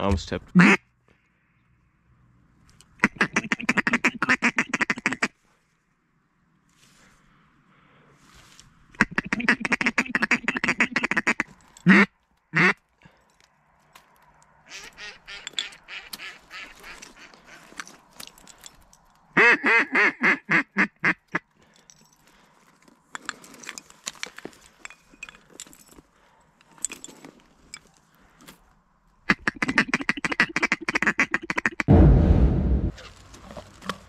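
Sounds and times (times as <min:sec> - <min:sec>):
clattering duck calls: 0:00.4 - 0:00.8, 0:03.0 - 0:05.4, 0:08.9 - 0:12.8, 0:14.6 - 0:18.0, 0:19.3 - 0:21.4, 0:29.2 - 0:31.9
duck quacking: 0:00.6 - 0:00.8, 0:03.0 - 0:05.3, 0:09.0 - 0:12.8, 0:14.7 - 0:17.7, 0:19.4 - 0:21.3, 0:29.3 - 0:31.9.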